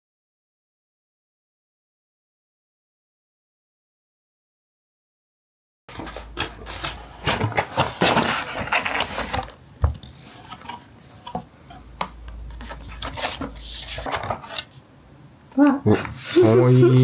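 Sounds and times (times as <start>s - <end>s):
cardboard box lid scraping: 5.9s - 9.6s, 12.5s - 14.8s.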